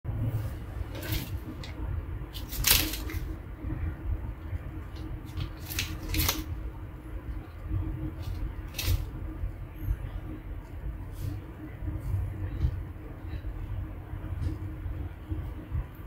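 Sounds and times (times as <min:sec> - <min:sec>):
low hum: 0:00.0 - 0:16.0
plastic packaging crinkling: 0:05.0 - 0:06.5.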